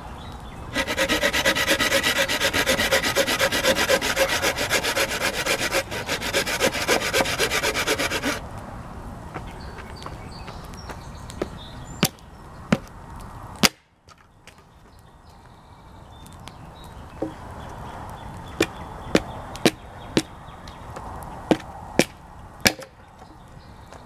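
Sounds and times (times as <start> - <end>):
firewood being chopped: 13.6 - 14.7, 18.6 - 23.0.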